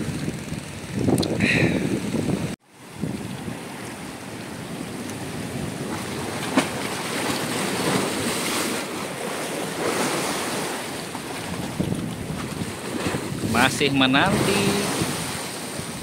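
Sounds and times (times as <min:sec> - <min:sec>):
wind buffeting microphone: 0:00.0 - 0:16.0
surf breaking on rocks: 0:04.9 - 0:16.0.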